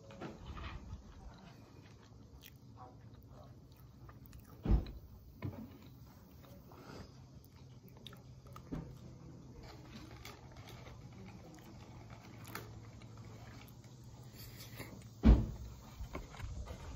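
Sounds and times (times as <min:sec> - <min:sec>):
person chewing: 0:01.3 - 0:09.1.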